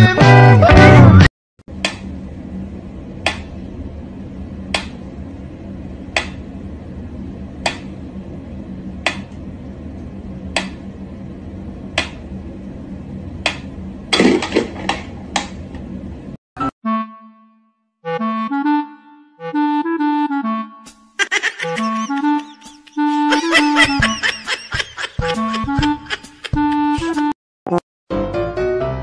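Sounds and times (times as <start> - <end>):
low steady hum: 1.7 - 16.4.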